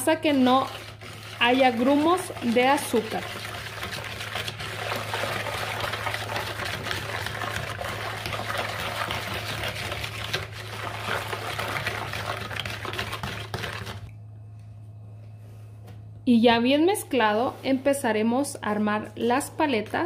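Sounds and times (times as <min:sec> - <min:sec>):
hand whisk sloshing in bowl: 0:00.0 - 0:14.1.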